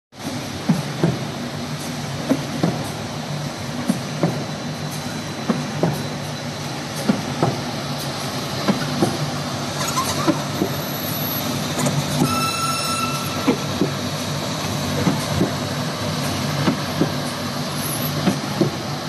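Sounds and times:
machine humming with sharp clacks: 0:00.2 - 0:19.0
short electronic beep: 0:12.2 - 0:13.5.

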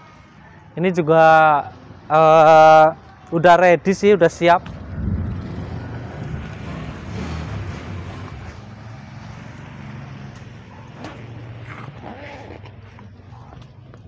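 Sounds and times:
vehicle engine passing: 0:04.6 - 0:13.8.

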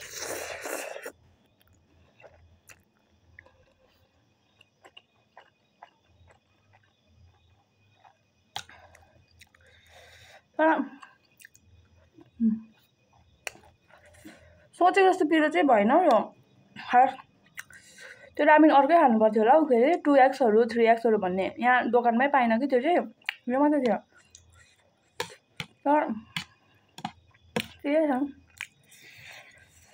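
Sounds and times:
noodle slurp: 0:00.0 - 0:01.2
soft chewing: 0:00.0 - 0:14.8, 0:17.1 - 0:18.1, 0:23.2 - 0:27.8, 0:28.4 - 0:29.9.

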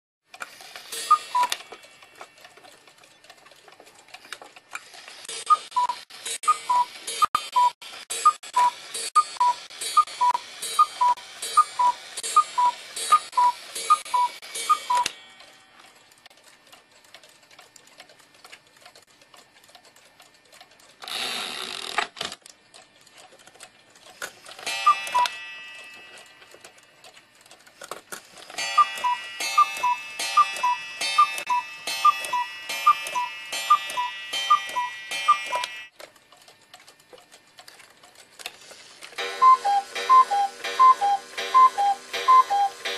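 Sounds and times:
clock mechanism clicks: 0:00.3 - 0:42.9
cuckoo clock calling: 0:00.9 - 0:03.4, 0:05.3 - 0:15.6, 0:24.6 - 0:27.2, 0:28.4 - 0:35.9, 0:39.2 - 0:42.9.

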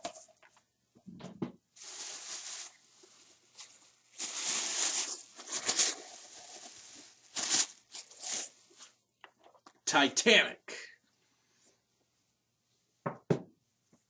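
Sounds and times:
plastic bag rustling: 0:01.8 - 0:08.9.

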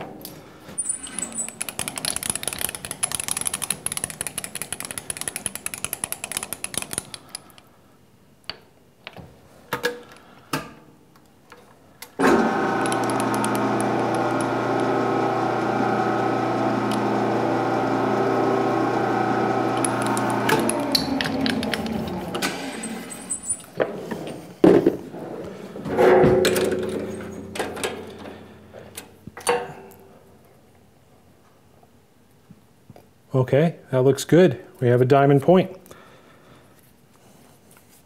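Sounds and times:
rapid clicks: 0:01.2 - 0:07.5, 0:12.8 - 0:14.6
lathe motor humming: 0:12.2 - 0:23.2.

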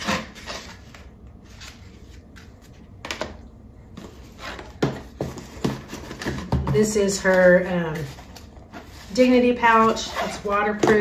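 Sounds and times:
paper pages rustling: 0:00.3 - 0:02.8.

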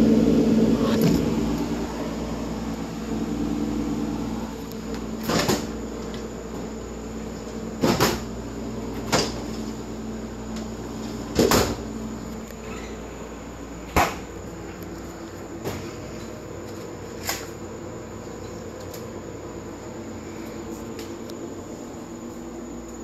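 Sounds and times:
steady mechanical hum: 0:00.0 - 0:23.0.

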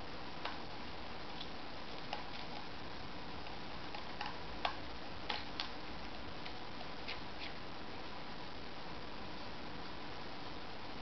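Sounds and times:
faint hiss: 0:00.0 - 0:11.0.

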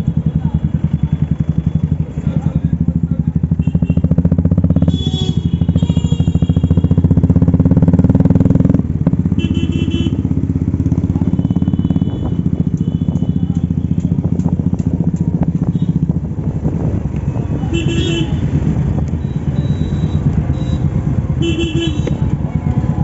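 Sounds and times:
motorcycle engine accelerating: 0:00.0 - 0:23.0
high horn beeps: 0:09.3 - 0:14.3, 0:17.3 - 0:22.2.

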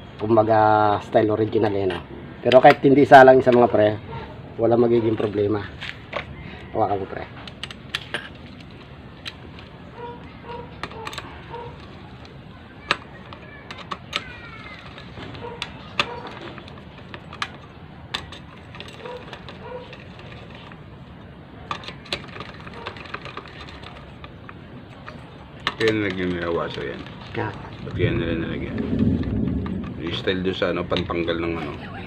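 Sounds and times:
metal parts and tools clinking: 0:07.3 - 0:30.2.

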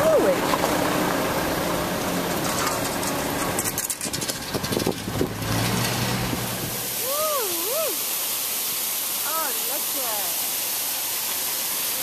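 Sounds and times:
car engine idling: 0:00.0 - 0:08.2
knocks and rustles: 0:02.3 - 0:06.2
waterfall hissing: 0:05.0 - 0:12.0.

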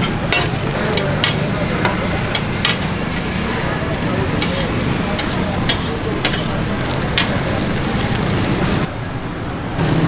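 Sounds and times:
metal ladle clinking on steel pot: 0:00.0 - 0:02.9
street traffic: 0:00.0 - 0:10.0.

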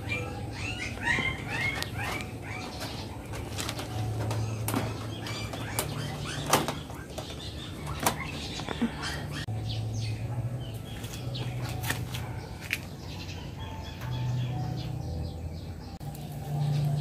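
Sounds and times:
cage clicking and rattling: 0:00.7 - 0:09.5.

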